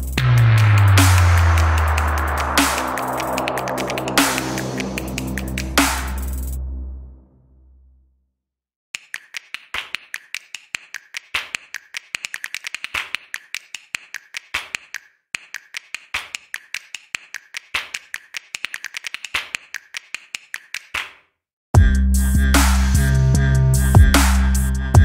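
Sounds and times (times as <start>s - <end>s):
sharp clicking taps: 9.0s - 21.2s.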